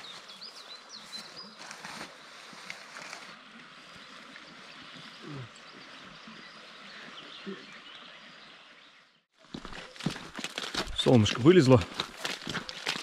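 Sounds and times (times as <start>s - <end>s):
flowing river water: 1.6s - 8.8s
faint bird calls: 4.2s - 8.4s.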